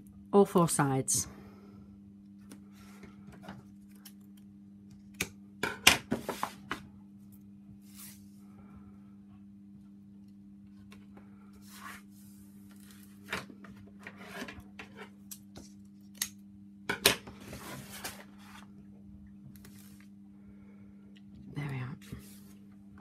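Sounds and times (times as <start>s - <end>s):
faint low hum: 6.4s - 23.0s.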